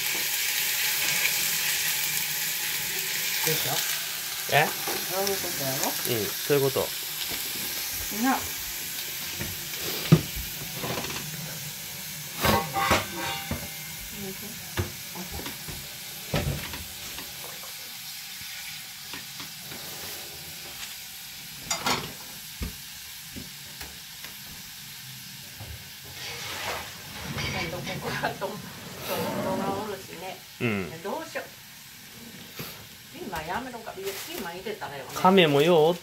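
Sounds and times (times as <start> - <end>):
food sizzling in a frying pan: 0.0 - 36.0.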